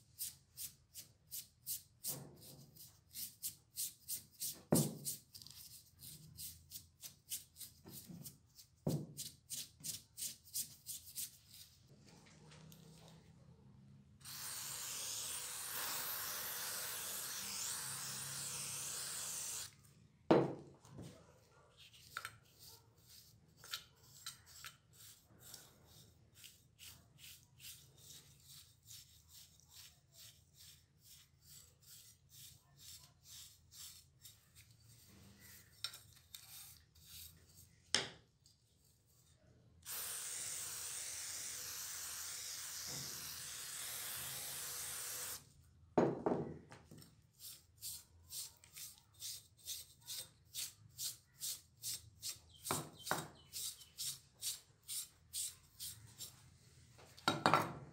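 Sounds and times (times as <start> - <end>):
aerosol spray hissing: 14.2 - 19.7, 39.9 - 45.4.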